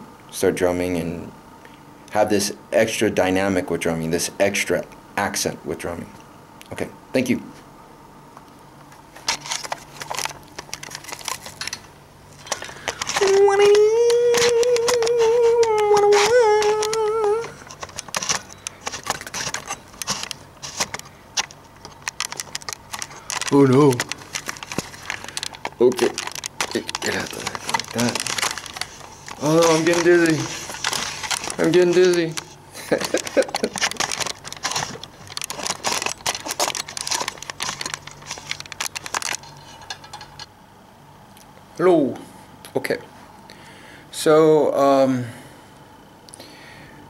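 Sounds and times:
camera handling clicks and rustles: 0:09.2 - 0:13.2, 0:14.3 - 0:40.5
person singing high note: 0:13.2 - 0:17.6.

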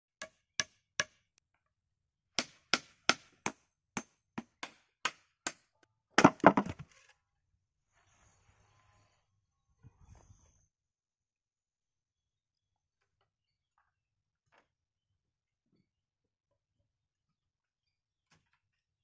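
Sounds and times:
hammer knocking wood into log: 0:06.2 - 0:06.8
wood clattering: 0:06.2 - 0:07.0.

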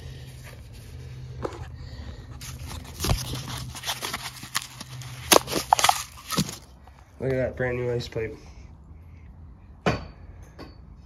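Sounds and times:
footsteps on debris and concrete: 0:02.5 - 0:06.7.

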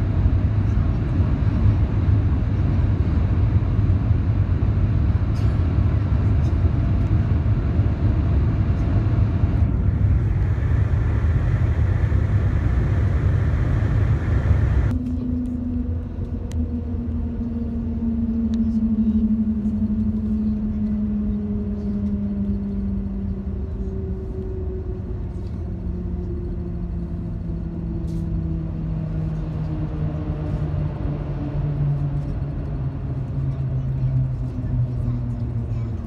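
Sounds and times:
train low rumble: 0:00.0 - 0:36.0
falling whine: 0:07.0 - 0:35.6.

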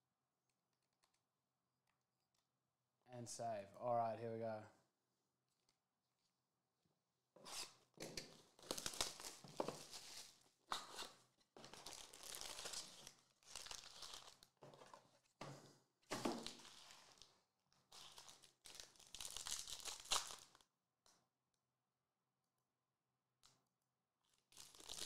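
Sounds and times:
foil packs crinkling: 0:08.3 - 0:10.4, 0:11.6 - 0:14.7, 0:16.2 - 0:17.3, 0:17.9 - 0:20.6, 0:24.6 - 0:25.0
plastic shrink wrap tearing: 0:08.3 - 0:14.6, 0:16.4 - 0:17.3, 0:17.9 - 0:20.6, 0:24.5 - 0:25.0.

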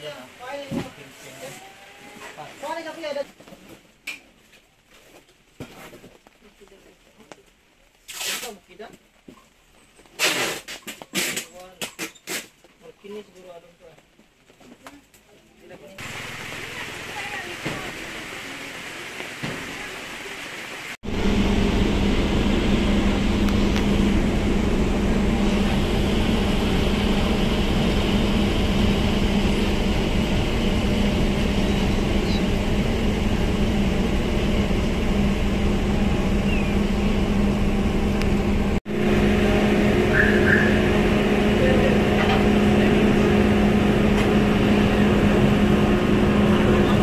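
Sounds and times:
constant rush of noise: 0:13.5 - 0:47.0
ferry engines droning: 0:16.0 - 0:19.4, 0:20.1 - 0:47.0.

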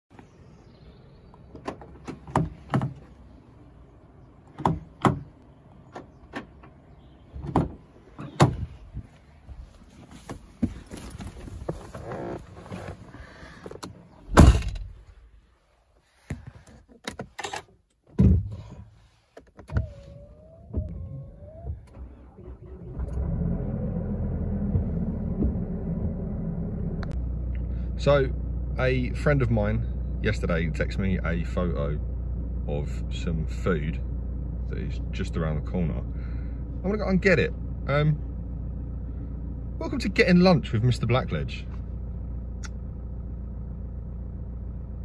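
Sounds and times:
car engine starting and idling: 0:00.1 - 0:16.3, 0:18.8 - 0:45.0
car door shutting: 0:07.4 - 0:08.9, 0:24.6 - 0:26.1.

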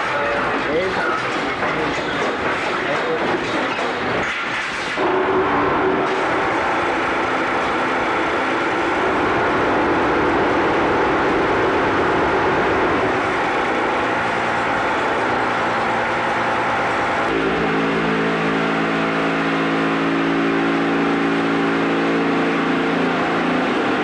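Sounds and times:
block-making machine running: 0:00.0 - 0:18.6
vibrator humming: 0:00.0 - 0:24.0.

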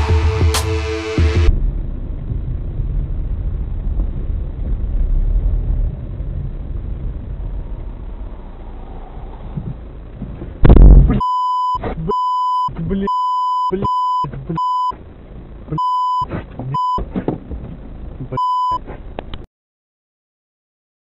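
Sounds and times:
heavy crash impact: 0:00.0 - 0:07.3, 0:10.6 - 0:11.2
censor bleeps: 0:11.0 - 0:14.9, 0:15.7 - 0:17.0, 0:18.3 - 0:18.8.

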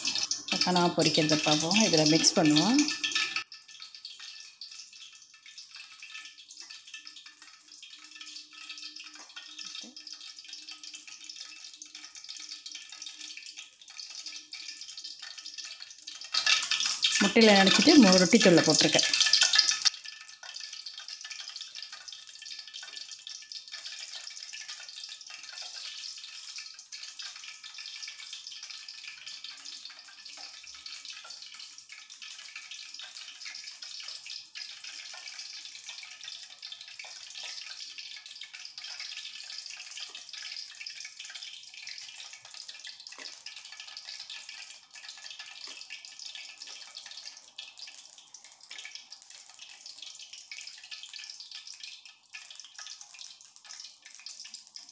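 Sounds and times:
taps and rustles in breadcrumbs: 0:19.1 - 0:54.9.

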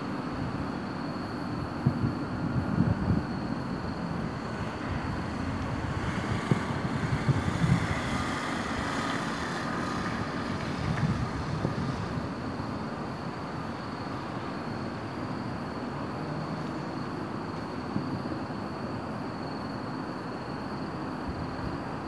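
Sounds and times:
distant vehicle whine: 0:02.4 - 0:18.6
outdoor rumble: 0:02.8 - 0:12.9.

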